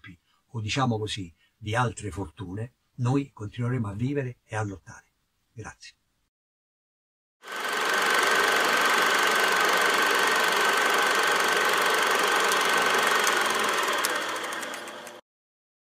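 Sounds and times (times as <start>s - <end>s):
machine running with high hum: 7.5s - 15.2s.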